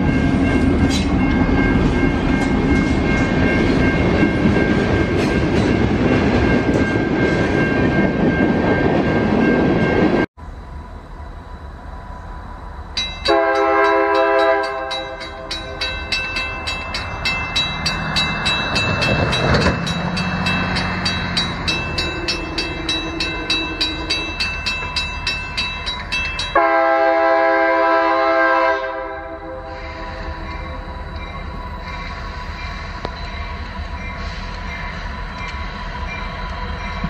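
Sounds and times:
crossing bell ringing rapidly: 0.0 - 10.3, 12.9 - 27.0, 29.9 - 37.0
locomotive air horn blasts: 13.3 - 15.3, 26.6 - 30.4.

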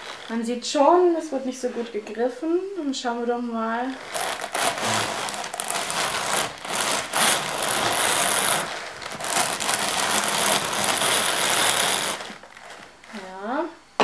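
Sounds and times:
hand-cranked drum carder whirring: 4.0 - 13.2.

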